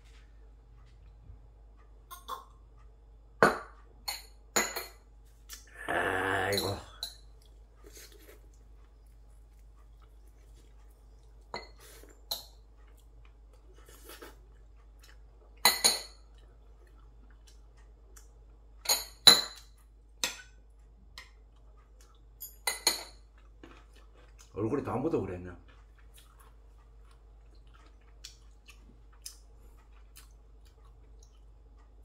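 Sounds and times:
chopsticks and spoon clinking bowls: 6.3 - 16.5, 17.8 - 24.5.

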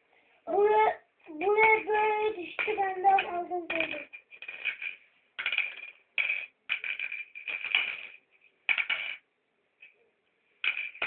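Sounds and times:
stones clicking and rattling: 2.5 - 9.2, 10.6 - 11.0.

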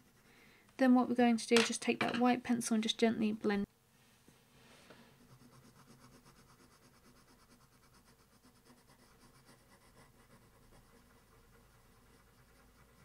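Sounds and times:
colored pencil scratching on paper: 5.1 - 13.0.

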